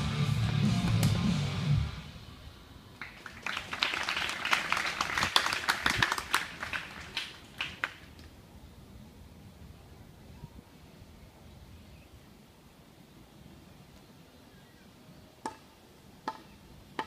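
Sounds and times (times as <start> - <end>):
audience clapping: 3.0 - 8.1.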